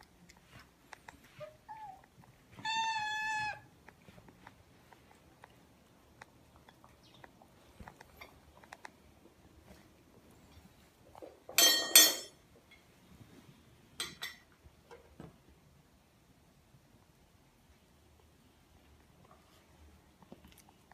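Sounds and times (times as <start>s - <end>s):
faint ticks and taps: 3.8s - 9.4s.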